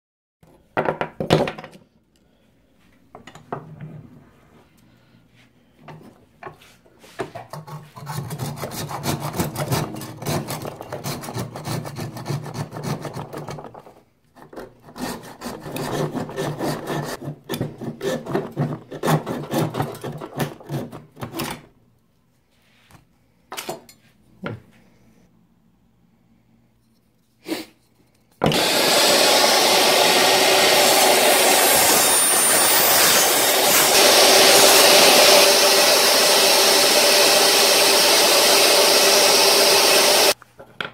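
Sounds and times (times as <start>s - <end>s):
hand saw cutting bone: 7.6s - 13.5s, 14.4s - 21.1s, 28.5s - 40.4s
power saw running: 28.4s - 40.4s.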